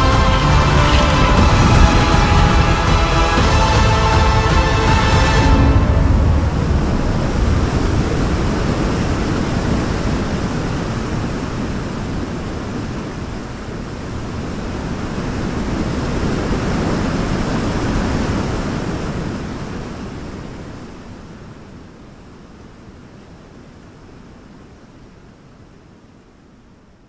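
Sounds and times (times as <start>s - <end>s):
falling water rushing: 0.0s - 21.4s.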